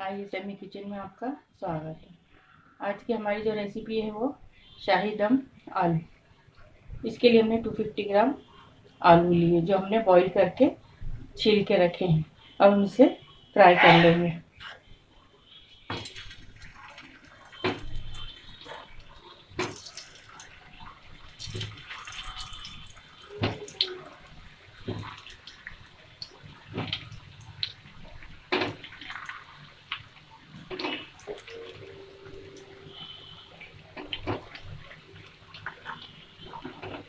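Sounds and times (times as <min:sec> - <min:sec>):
hot oil sizzling in a frying pan: 0:15.9 - 0:31.7.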